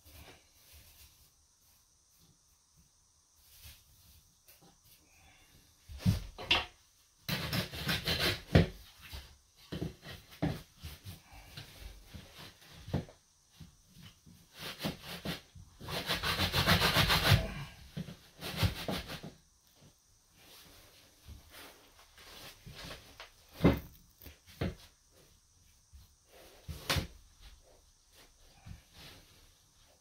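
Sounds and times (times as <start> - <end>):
hand tools scraping mortar: 7.3 - 8.7, 14.6 - 19.3.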